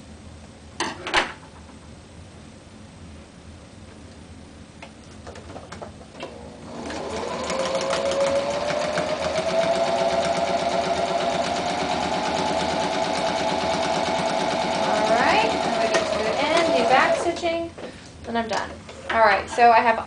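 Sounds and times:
sewing machine stitching: 6.7 - 17.4.

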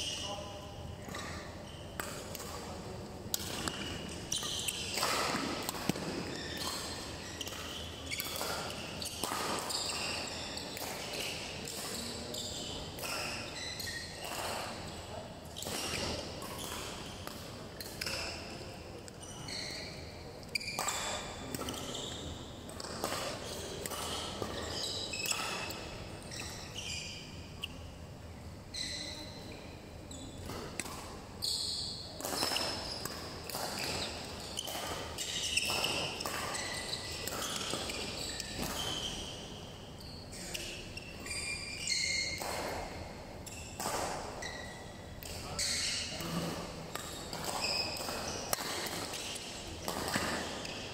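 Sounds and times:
shoes squeaking on court floor: 0.0 - 27.9, 28.7 - 50.9
racket striking shuttlecock: 3.3 - 9.7, 32.2 - 37.9, 43.8 - 44.4, 46.9 - 50.8.

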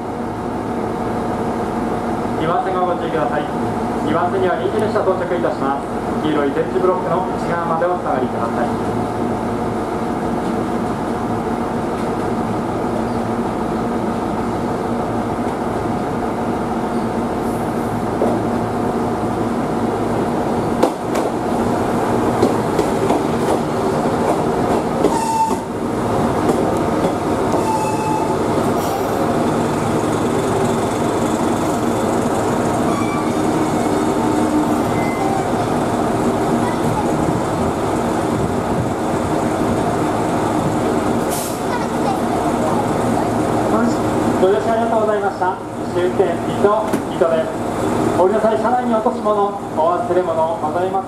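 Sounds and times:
diesel railcar engine running: 0.0 - 51.0
wheel or brake squeals: 27.6 - 28.9, 32.9 - 33.5, 34.8 - 35.6.

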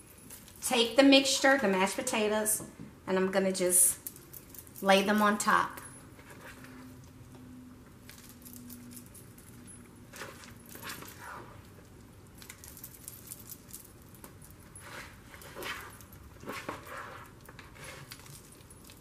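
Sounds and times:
metal bangles jingling: 4.0 - 6.2, 8.0 - 16.5, 18.0 - 19.0.

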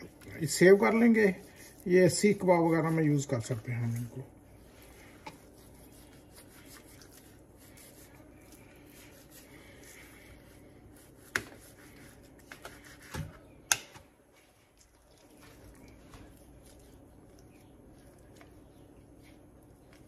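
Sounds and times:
knife slicing and scraping meat: 4.8 - 13.2.

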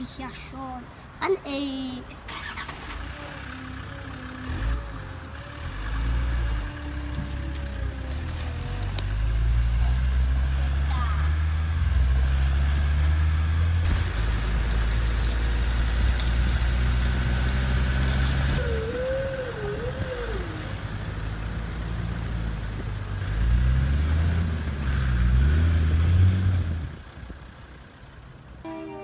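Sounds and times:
truck engine idling and revving: 2.0 - 28.7
brief wavering tone: 28.7 - 29.0.

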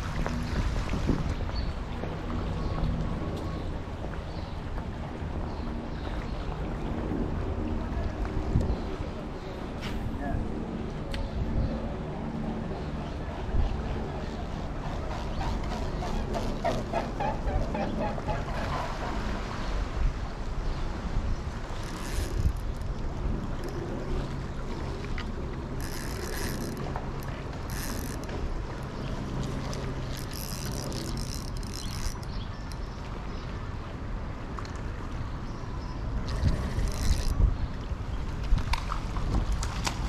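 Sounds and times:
fishing reel winding: 21.8 - 22.9, 25.8 - 28.4, 29.6 - 32.8, 36.2 - 37.4.

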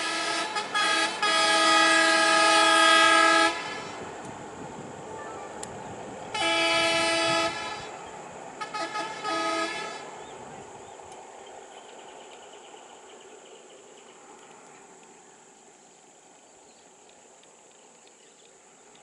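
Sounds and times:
vehicle horn blasts: 0.0 - 4.0, 6.4 - 7.9, 8.6 - 10.1.

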